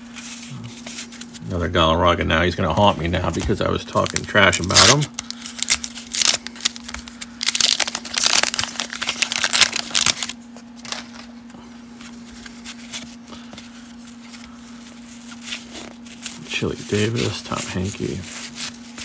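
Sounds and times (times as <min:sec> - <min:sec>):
cards rustling and ticking: 0:02.6 - 0:19.0
wax paper wrapper crinkling and tearing: 0:03.2 - 0:11.3, 0:12.2 - 0:19.0.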